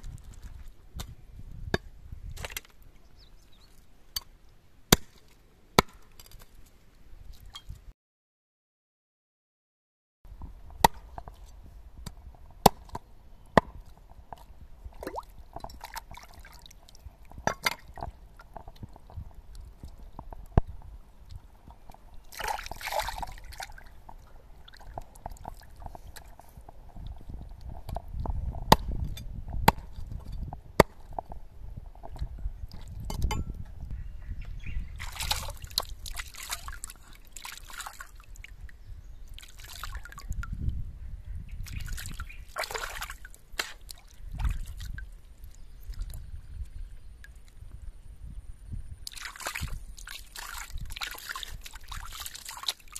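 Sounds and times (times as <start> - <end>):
water sloshing and splashing: 14.9 - 19.8, 22.2 - 27.1, 35.0 - 38.5, 39.3 - 40.5, 41.6 - 45.2, 49.0 - 52.9.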